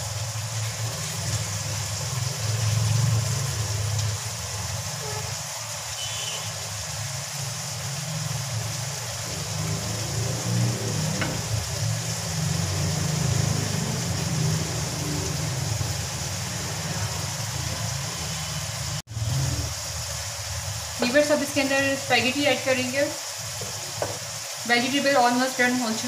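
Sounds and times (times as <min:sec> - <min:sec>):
food frying in a wok: 0:00.0 - 0:26.0
low hum of stove or fan: 0:07.0 - 0:14.5.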